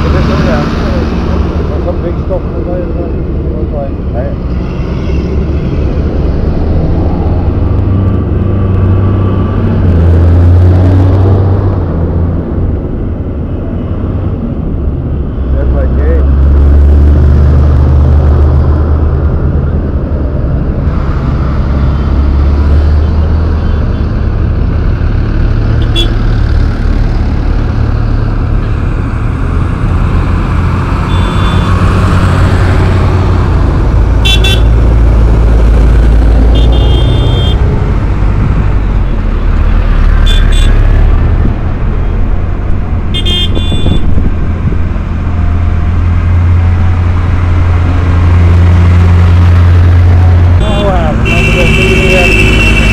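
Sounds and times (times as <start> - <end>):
tractor diesel engines running: 16.8 - 52.9
short horn beeps: 31.1 - 31.7, 36.6 - 37.6, 43.2 - 44.1.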